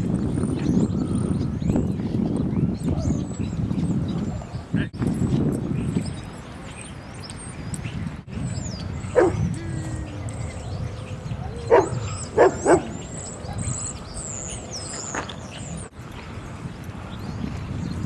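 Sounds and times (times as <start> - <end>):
dog barking: 9.2 - 9.4, 11.7 - 13.7.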